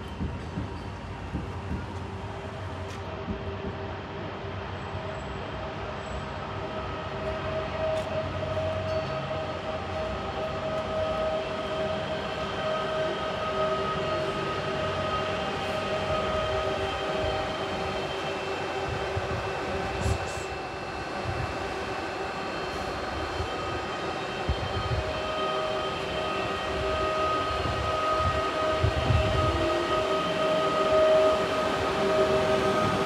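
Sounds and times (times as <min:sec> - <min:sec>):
electric train motor whine: 0:06.6 - 0:33.0.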